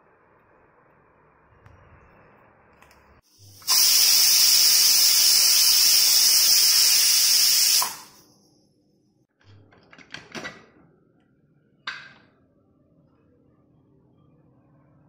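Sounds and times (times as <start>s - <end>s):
pressure cooker valve whistling: 3.4s - 8.2s.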